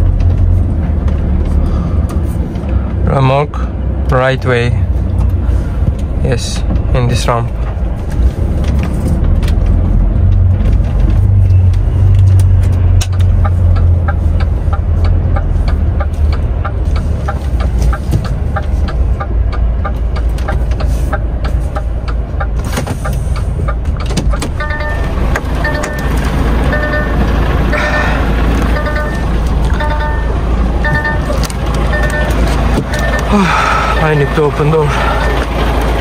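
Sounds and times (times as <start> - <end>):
diesel truck engine running: 0.0 - 36.0
short beeping tones: 24.6 - 35.5.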